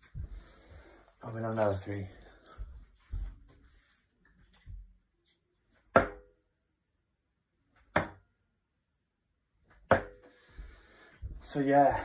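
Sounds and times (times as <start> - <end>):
darts striking a dartboard: 5.9 - 6.4, 7.9 - 8.2, 9.9 - 10.2.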